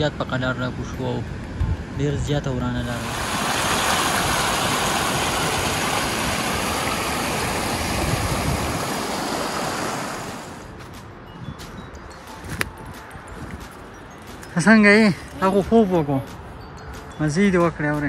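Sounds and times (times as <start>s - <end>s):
mountain stream rushing: 2.8s - 10.8s.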